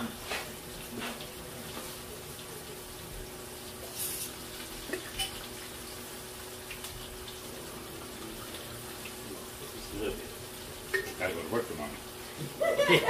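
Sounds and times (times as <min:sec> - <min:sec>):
food frying in hot oil: 0:00.0 - 0:13.0
bottle clinking and pouring: 0:10.9 - 0:11.2.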